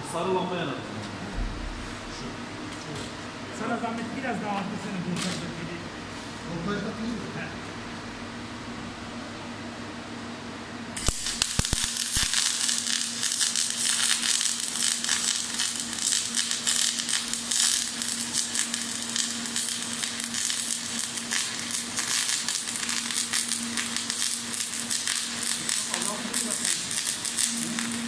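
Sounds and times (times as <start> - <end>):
steady low hum: 0.0 - 28.0
welding arc crackling: 11.0 - 28.0.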